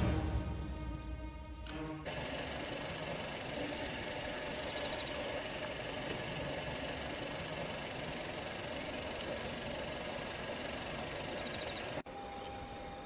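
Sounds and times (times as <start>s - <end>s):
faint constant tones: 1.6s - 13.0s
vehicle running hiss: 2.1s - 12.0s.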